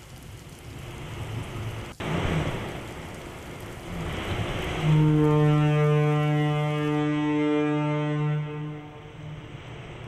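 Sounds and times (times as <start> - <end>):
rain hiss: 0.0 - 10.0
low horn-like tone: 4.7 - 9.5.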